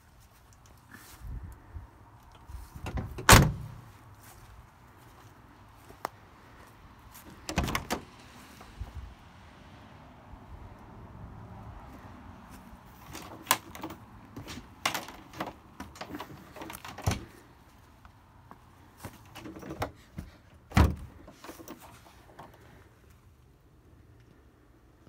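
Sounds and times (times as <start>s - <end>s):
heavy door thump: 2.8s - 3.8s, 20.7s - 21.1s
metal door latch clicks and knocks: 2.8s - 3.8s, 7.5s - 8.1s, 13.1s - 17.3s.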